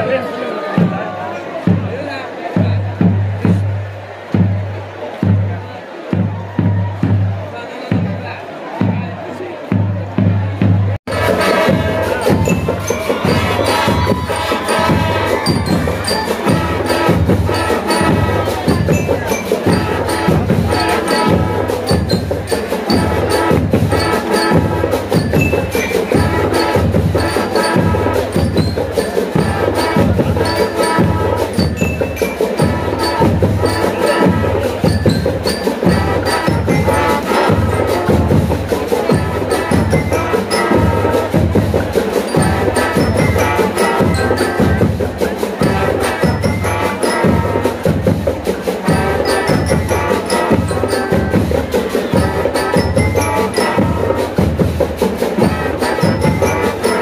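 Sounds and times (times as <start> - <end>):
steady drumbeat: 0.0 - 57.0
trumpets and trombones: 10.3 - 57.0
bell lyres ringing: 11.1 - 48.0.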